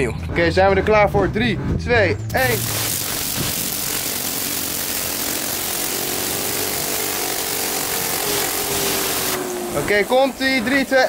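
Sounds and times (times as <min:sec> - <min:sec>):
pressure washer jet hissing: 0:02.4 - 0:11.0
spinner whine rising in pitch: 0:02.4 - 0:11.0.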